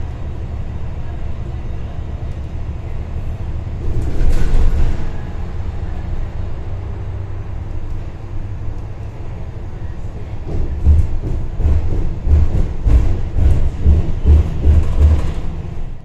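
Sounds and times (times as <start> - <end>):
bus road rumble: 0.0 - 16.0
heavy low thumps with rattles: 10.4 - 16.0.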